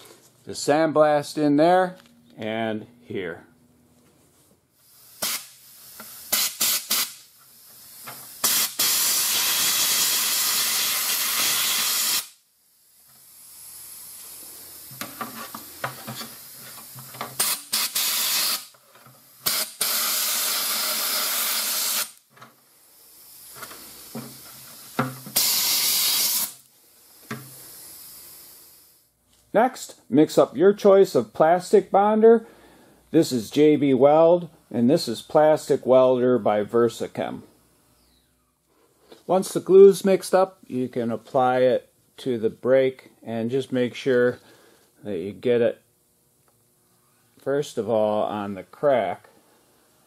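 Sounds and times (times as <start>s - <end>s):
compressed air grit blasting: 4.8s - 22.2s, 22.8s - 29.0s.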